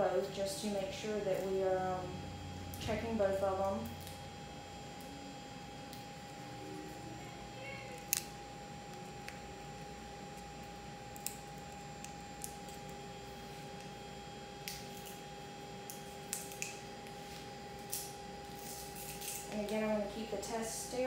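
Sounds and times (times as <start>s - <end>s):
faint steady hum: 0.0s - 21.0s
test strip packet clicks and crinkles: 11.1s - 13.0s.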